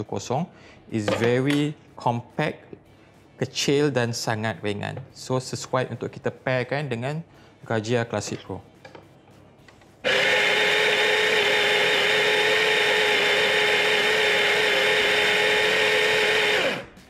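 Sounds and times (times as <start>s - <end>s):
coffee grinder motor whining: 10.0s - 17.0s.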